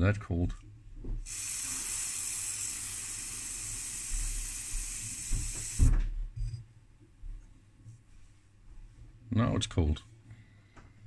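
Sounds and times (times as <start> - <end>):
aerosol spray hissing: 1.2 - 6.0.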